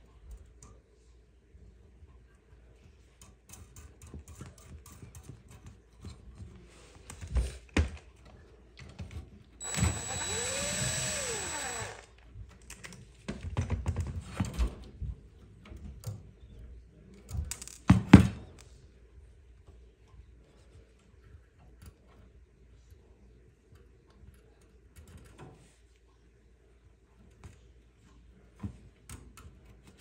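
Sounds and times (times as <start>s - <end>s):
small motor whirring: 9.6s - 12.1s.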